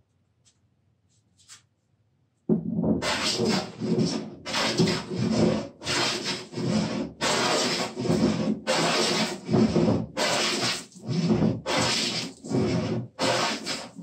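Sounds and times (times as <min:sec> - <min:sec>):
hand plane shaving wood: 0:03.0 - 0:14.0.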